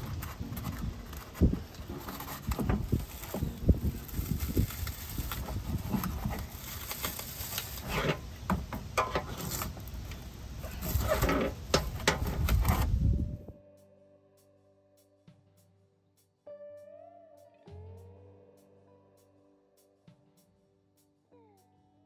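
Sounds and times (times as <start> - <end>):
scraping and rubbing: 0.0 - 13.2.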